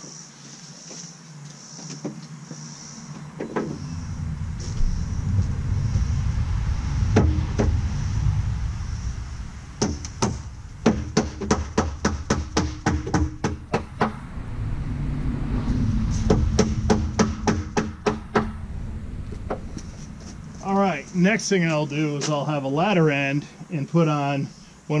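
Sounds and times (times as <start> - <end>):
low rumble: 3.2 - 22.8
hammer knocking on wood: 10.8 - 14.1.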